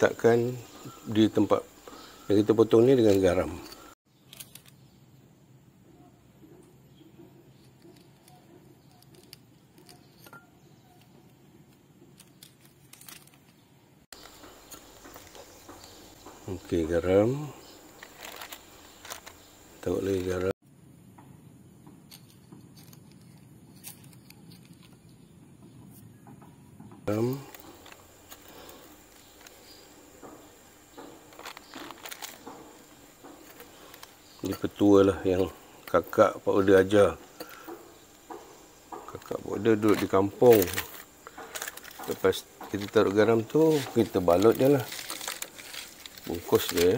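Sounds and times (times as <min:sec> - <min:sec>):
newspaper rustling: 0:17.8 - 0:20.5, 0:27.1 - 0:35.0, 0:39.2 - 0:46.9
salt crunching: 0:39.0 - 0:46.9.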